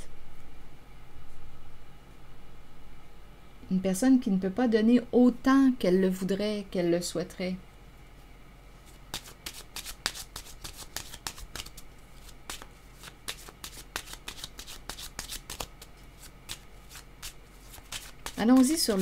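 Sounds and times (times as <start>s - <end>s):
cards being shuffled: 8.9s - 19.0s.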